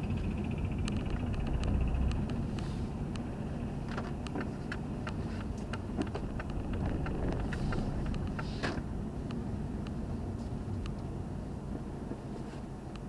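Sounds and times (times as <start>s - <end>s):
car rumbling at low speed: 0.0s - 13.0s
turn signal ticking: 0.0s - 13.0s.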